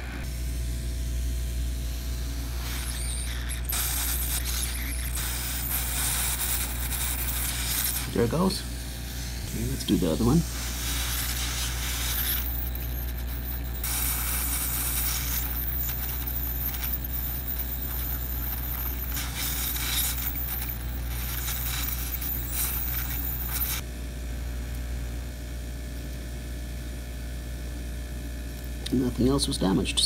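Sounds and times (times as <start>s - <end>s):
hot air nozzle hissing: 1.7s - 23.8s.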